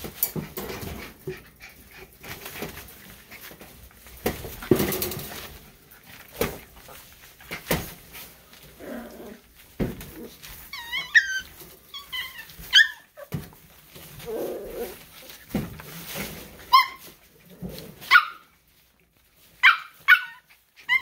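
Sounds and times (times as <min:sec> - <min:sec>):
thumps of puppies tumbling: 0:00.0 - 0:08.8, 0:09.4 - 0:18.2
puppies yipping: 0:10.6 - 0:13.4, 0:16.6 - 0:17.2, 0:19.6 - 0:21.0.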